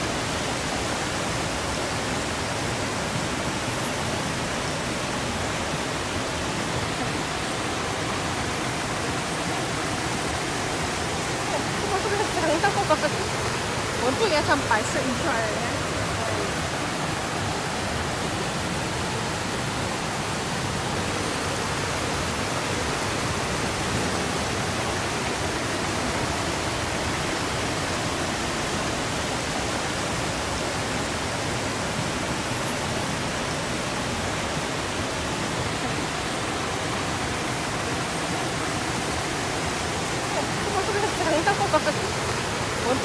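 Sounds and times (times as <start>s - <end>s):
stream rushing over boulders: 0.0s - 43.0s.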